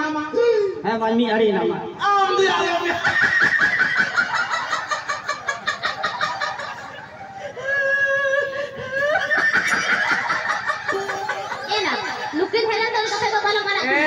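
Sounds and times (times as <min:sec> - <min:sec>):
man cackling through loudspeaker: 0:02.3 - 0:12.3.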